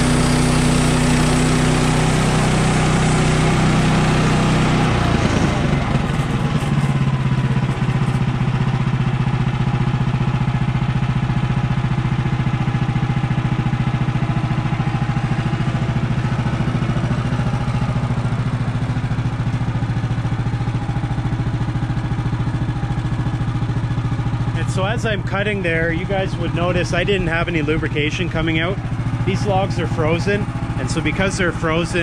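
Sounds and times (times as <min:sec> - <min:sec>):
sawmill gas engine running: 0:00.0 - 0:32.0
saw blade cutting log: 0:05.4 - 0:08.4.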